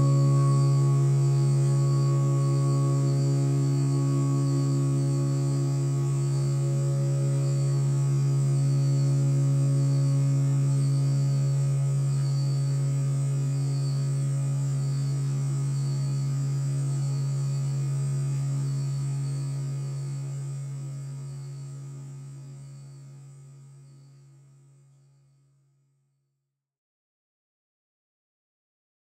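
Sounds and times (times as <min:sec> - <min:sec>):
loud low hum: 0:00.0 - 0:21.4.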